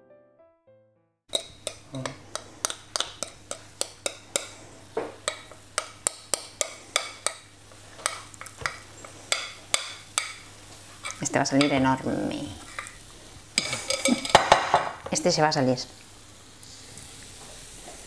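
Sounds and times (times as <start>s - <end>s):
spoon clinking against bowl: 1.3s - 4.5s, 13.6s - 14.6s.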